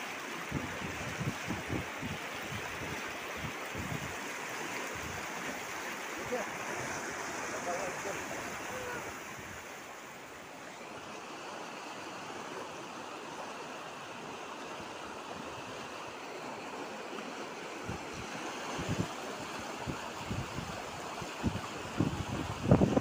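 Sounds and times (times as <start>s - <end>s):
river rushing over rocks: 0.0s - 23.0s.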